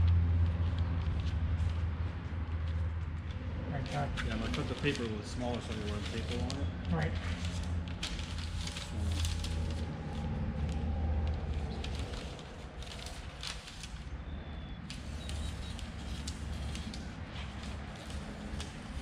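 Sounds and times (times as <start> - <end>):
paper rustling and crackling: 0.0 - 19.0
steady low rumble: 0.0 - 19.0.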